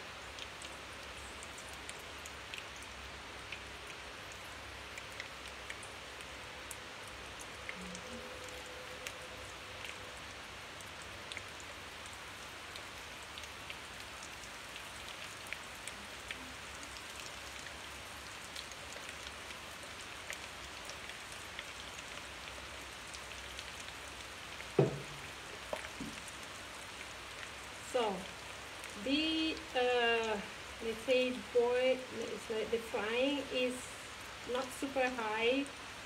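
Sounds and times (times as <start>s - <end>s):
frying sizzle with pops: 15.4s - 30.5s
sharp knock: 24.8s - 25.2s.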